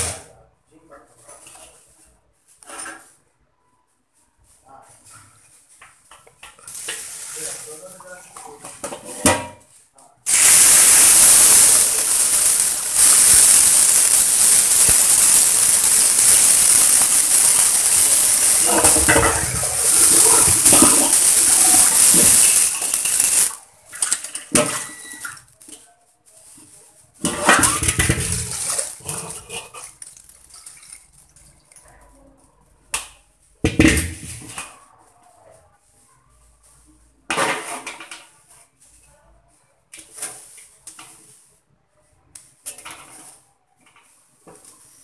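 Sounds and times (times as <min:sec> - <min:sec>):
wok knocking: 0:10.3 - 0:23.6
tap water running into a wok: 0:10.3 - 0:25.5, 0:27.3 - 0:31.5.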